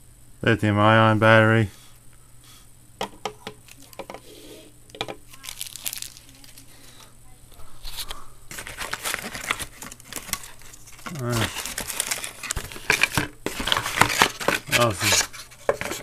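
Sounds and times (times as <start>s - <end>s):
cardboard packaging rustling: 5.3s - 6.8s, 7.8s - 16.0s.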